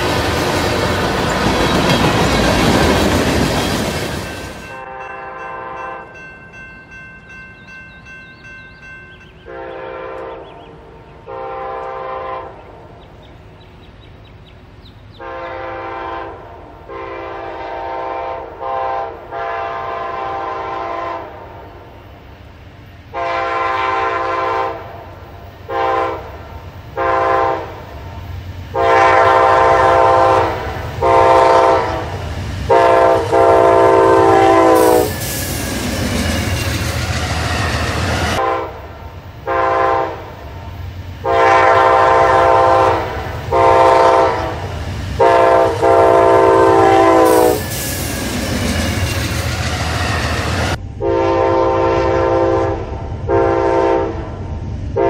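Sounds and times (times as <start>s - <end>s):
train rumble: 0.0s - 55.0s
locomotive horn blasts: 4.6s - 6.2s, 9.4s - 13.0s, 15.2s - 21.6s, 23.1s - 25.0s, 25.7s - 26.3s, 27.0s - 27.8s, 28.7s - 35.2s, 38.2s - 40.3s, 41.2s - 47.8s, 50.0s - 54.3s.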